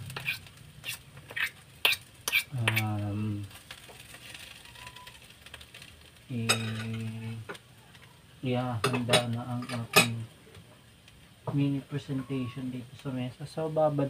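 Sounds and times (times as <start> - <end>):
metal utensil scraping a pan: 0.0 - 3.0, 6.4 - 7.2, 8.8 - 10.2.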